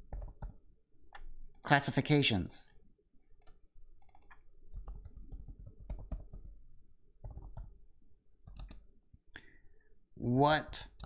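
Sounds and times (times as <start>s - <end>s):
laptop keyboard keys clicking: 0.1s - 0.6s, 3.4s - 6.6s, 7.2s - 7.7s, 8.5s - 8.8s.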